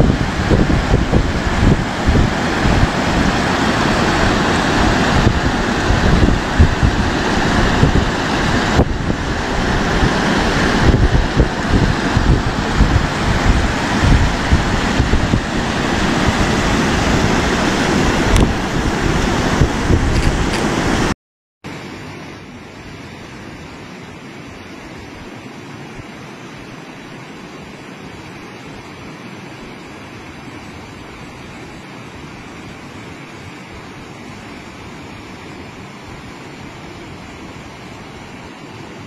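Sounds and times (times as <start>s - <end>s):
wind buffeting microphone: 0.0s - 21.1s
floodwater rushing: 0.0s - 39.0s
swollen river rushing: 0.0s - 39.0s.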